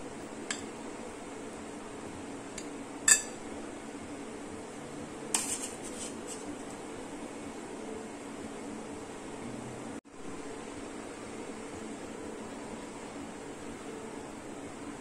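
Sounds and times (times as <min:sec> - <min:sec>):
low background hum: 0:00.0 - 0:15.0
spoon clinking against glass: 0:03.1 - 0:03.4.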